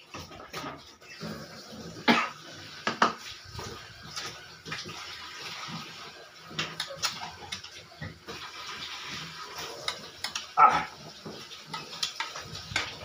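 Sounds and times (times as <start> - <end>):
chewing: 9.4 - 13.0
mouth clicks and smacks: 11.8 - 13.0.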